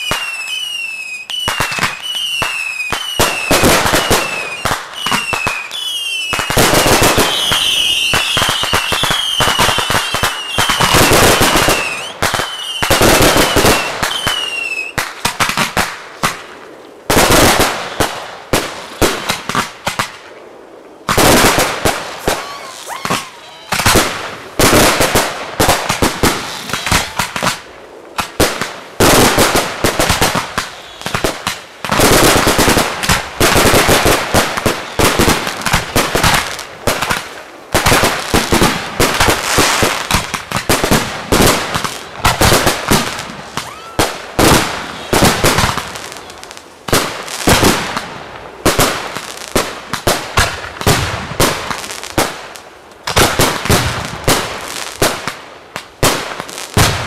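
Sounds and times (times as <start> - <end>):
falling whistles: 0.0 - 6.5, 7.3 - 15.0
fireworks crackle: 0.0 - 57.0
heavy fireworks bangs: 1.3 - 20.3, 21.0 - 55.4, 56.0 - 57.0
firework shells launching and bursting: 21.1 - 46.1.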